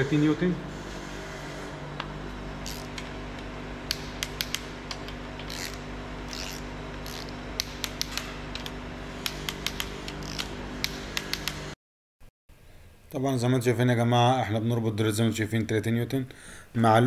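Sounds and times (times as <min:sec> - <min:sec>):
steady low hum: 0:00.0 - 0:11.8
torque wrench ratcheting clicks: 0:03.9 - 0:11.6.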